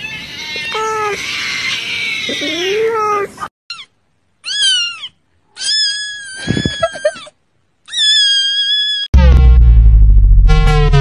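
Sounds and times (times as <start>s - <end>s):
kitten meowing: 3.7s - 7.2s, 7.9s - 9.1s.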